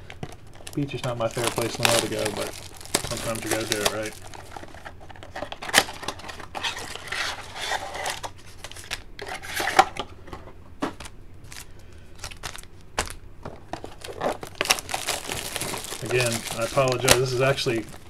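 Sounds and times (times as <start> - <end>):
foil wrappers crinkling: 0.0 - 9.1, 11.4 - 18.0.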